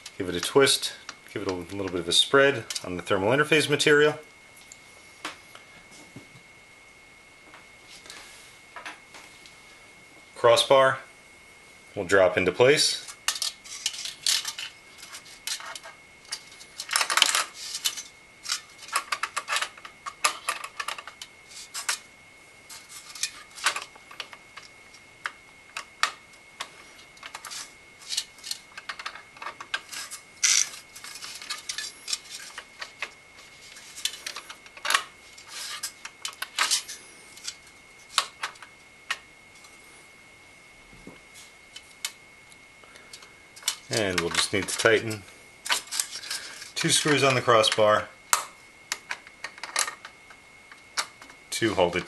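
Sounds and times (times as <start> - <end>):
metal parts clicking and clinking: 13.0 - 22.0, 27.2 - 33.1, 33.7 - 39.2, 43.1 - 50.1.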